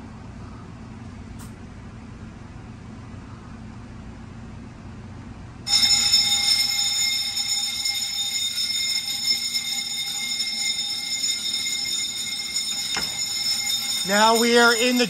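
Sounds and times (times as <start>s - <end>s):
fire alarm bell ringing: 5.7s - 15.0s.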